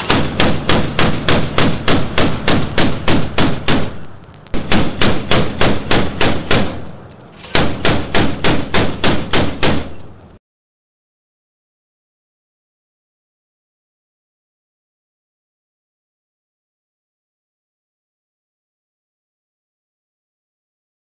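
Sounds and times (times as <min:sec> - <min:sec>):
deck gun firing single shots: 0:00.0 - 0:10.1.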